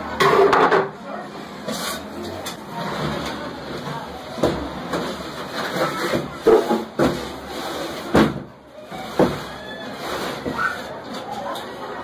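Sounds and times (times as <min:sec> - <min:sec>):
workshop noise: 0:00.0 - 0:12.0.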